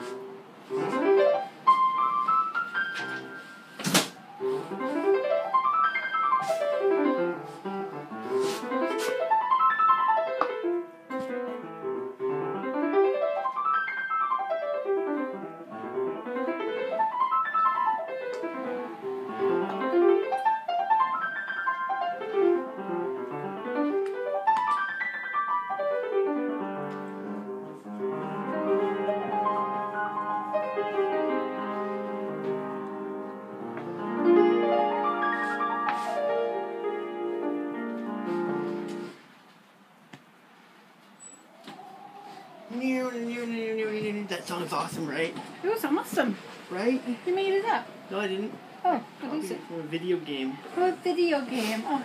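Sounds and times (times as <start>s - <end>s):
solo piano arpeggios and chords: 0.0s - 39.2s.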